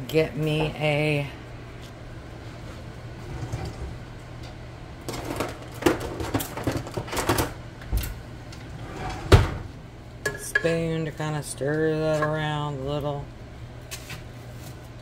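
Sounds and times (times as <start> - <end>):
steady low hum: 0.0 - 15.0
kitchen utensils clattering: 5.1 - 7.6.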